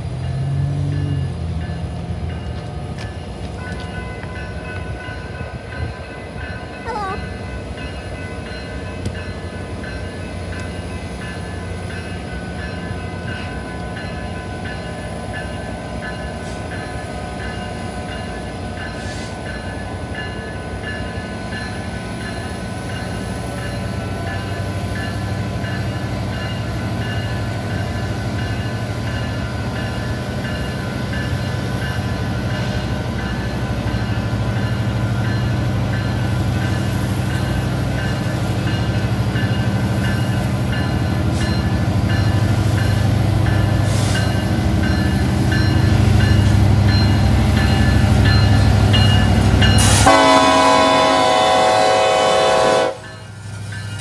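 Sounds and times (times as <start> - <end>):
diesel locomotive engine rumble: 0.0 - 54.0.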